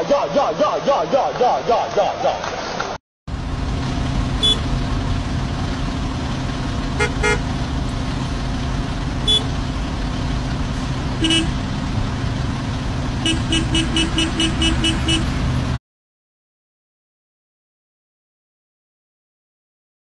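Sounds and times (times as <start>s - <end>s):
street traffic rumble: 0.0s - 15.8s
car horns beeping: 4.4s - 4.7s, 7.0s - 7.5s, 9.2s - 9.6s, 11.2s - 11.6s, 13.2s - 15.5s.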